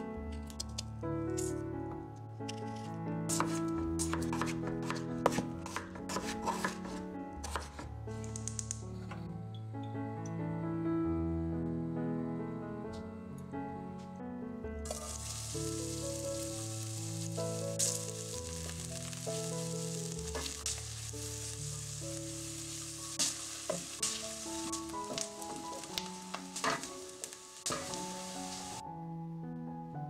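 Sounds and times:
soft background music: 0.0s - 30.0s
wooden spoon scraping a pot: 3.3s - 7.8s
onion sizzling in hot oil: 14.9s - 28.8s.

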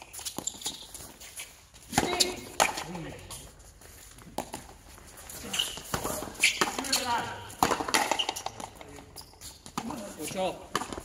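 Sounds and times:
players' voices: 1.8s - 3.6s, 5.1s - 11.0s.

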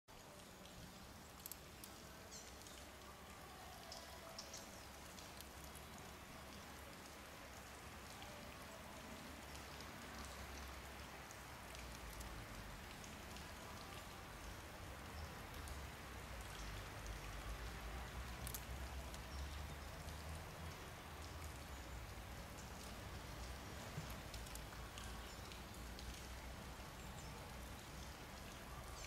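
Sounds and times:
faint outdoor hiss: 0.1s - 29.0s
light ticks: 0.4s - 3.1s, 9.4s - 29.0s.

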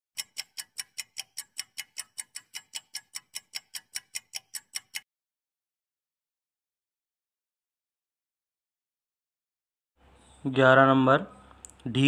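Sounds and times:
rapid clock ticking: 0.2s - 5.0s.

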